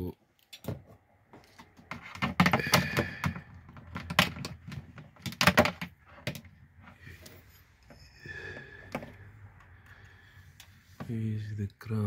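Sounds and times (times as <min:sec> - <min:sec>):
plastic clicks and knocks: 0:00.5 - 0:06.6.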